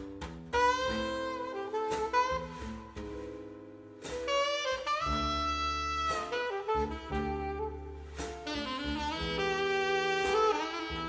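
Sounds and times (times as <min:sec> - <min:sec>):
instrumental music with gliding lead: 0:00.0 - 0:11.0.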